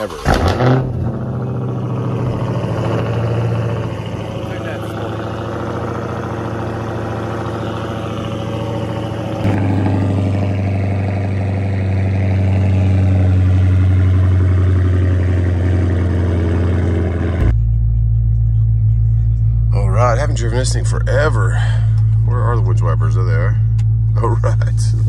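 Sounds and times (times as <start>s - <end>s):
car engine idling: 0.0s - 25.0s.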